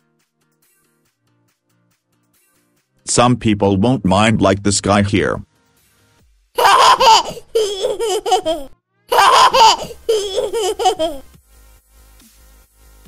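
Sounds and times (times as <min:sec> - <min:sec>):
high-pitched laughter: 0:06.6 - 0:11.3.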